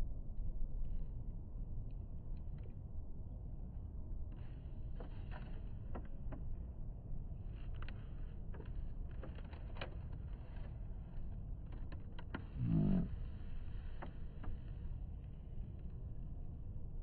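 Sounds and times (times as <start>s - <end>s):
person humming closed-mouth: 12.6s - 13.2s.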